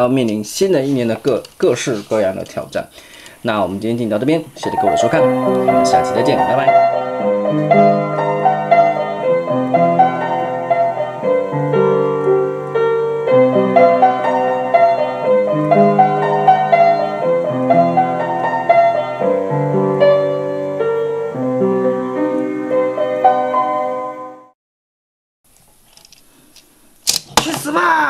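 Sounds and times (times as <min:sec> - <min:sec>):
piano music: 0:04.1 - 0:24.6.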